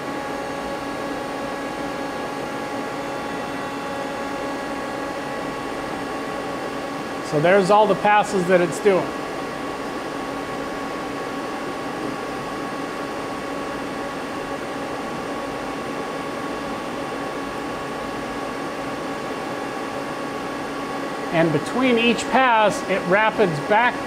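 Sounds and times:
idle machine hum: 0:00.0 - 0:24.0
steady machine tones: 0:20.2 - 0:24.0.

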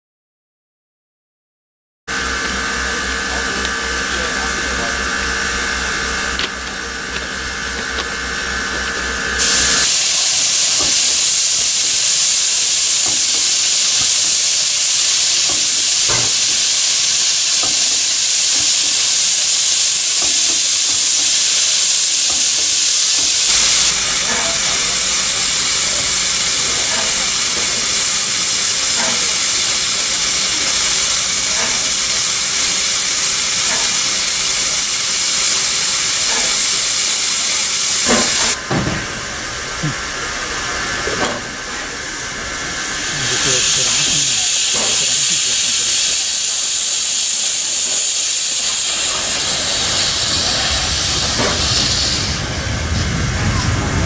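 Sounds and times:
low machine hum: 0:02.1 - 0:18.0
steam hissing: 0:02.1 - 0:54.0
low rumble: 0:50.7 - 0:54.0.

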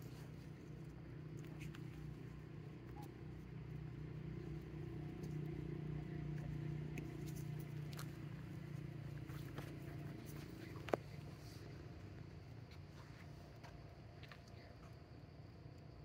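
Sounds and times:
vehicle engine running: 0:00.0 - 0:14.4
faint clicks: 0:06.4 - 0:08.3.

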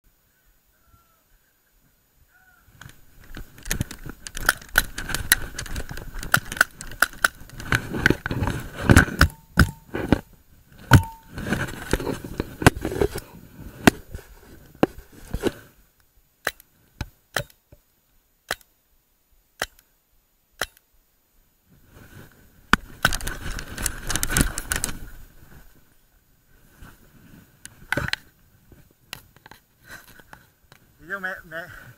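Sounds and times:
sharp cracks: 0:02.8 - 0:10.0, 0:19.6 - 0:19.9
sharp knocks: 0:10.9 - 0:11.3.

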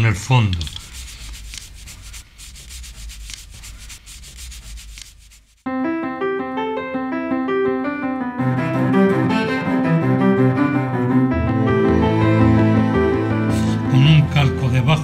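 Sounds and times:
scratchy rubbing strokes: 0:00.3 - 0:05.7
solo piano music: 0:05.7 - 0:15.0.

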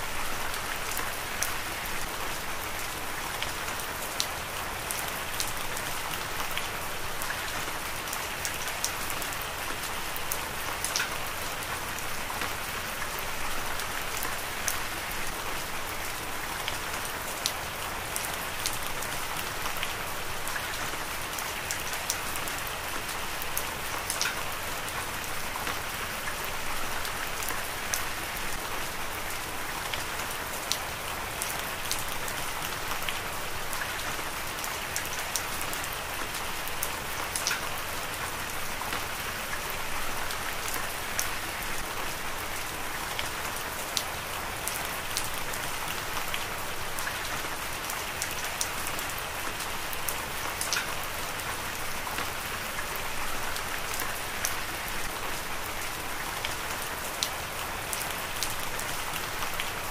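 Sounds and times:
raindrops ticking close by: 0:00.2 - 0:59.9.

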